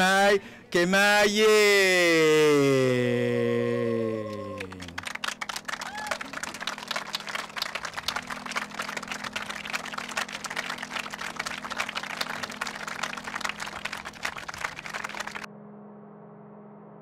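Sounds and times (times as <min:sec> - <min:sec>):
audience applauding: 0:02.0 - 0:15.5.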